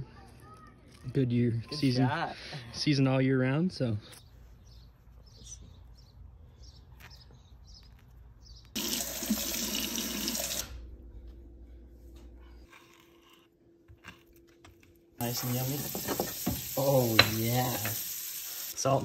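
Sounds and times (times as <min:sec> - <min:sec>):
tap water running: 0:08.8 - 0:10.8, 0:15.2 - 0:18.8.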